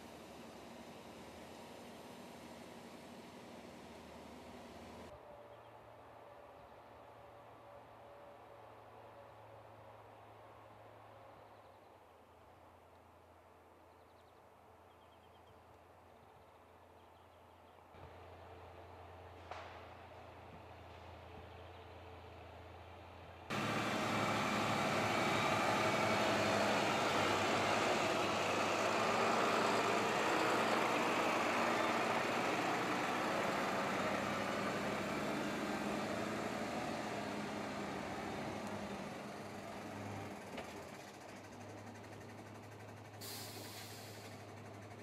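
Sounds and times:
heavy vehicle engine running: 0.0 - 5.1, 18.0 - 45.0.

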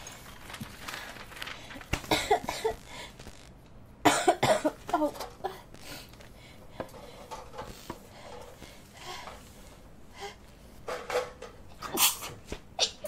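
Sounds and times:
person coughing: 2.0 - 2.8, 4.0 - 5.7.

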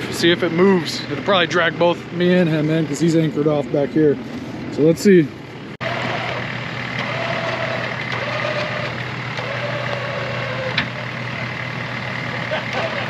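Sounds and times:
engine idling: 0.0 - 13.0
winch motor whining: 5.8 - 13.0.

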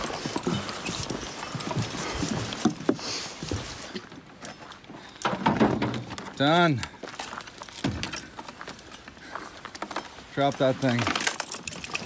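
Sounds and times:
footsteps of hikers: 0.0 - 12.0
gear knocking and rattling: 9.8 - 12.0.

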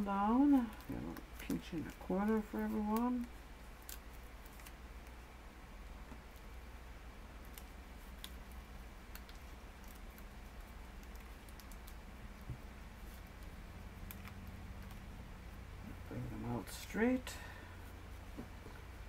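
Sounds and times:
paper crackling and creasing: 0.3 - 4.8.

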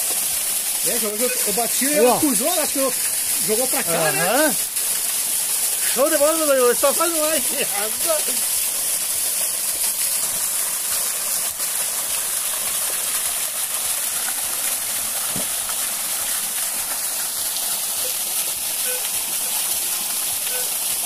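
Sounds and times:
waterfall pouring onto rock: 0.0 - 21.0.

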